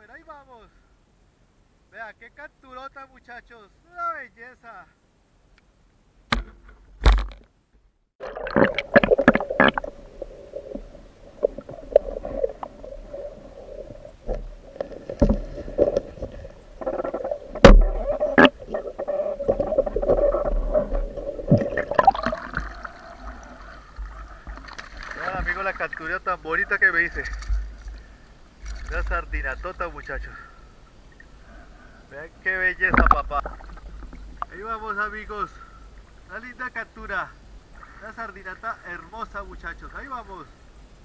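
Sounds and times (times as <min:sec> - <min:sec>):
underwater churning water: 0:08.2 - 0:26.1, 0:32.8 - 0:34.5
underwater knocks and scrapes: 0:08.5 - 0:25.6, 0:32.8 - 0:34.5.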